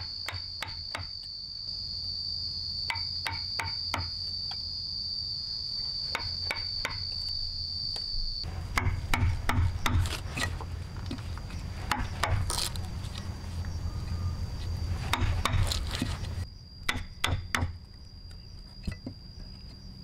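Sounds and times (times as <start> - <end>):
chisel striking into wood: 8.7 - 10.2, 16.9 - 17.8.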